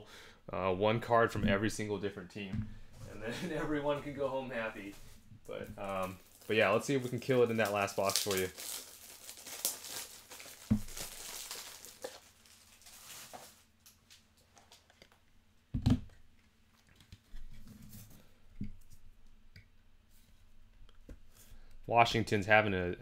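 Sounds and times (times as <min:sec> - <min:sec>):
plastic crinkling: 0:05.6 - 0:15.2.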